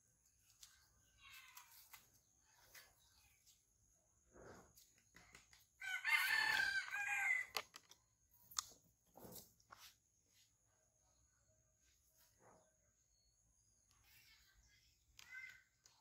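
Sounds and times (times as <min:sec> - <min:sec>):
rooster crowing: 0:05.8 - 0:07.6.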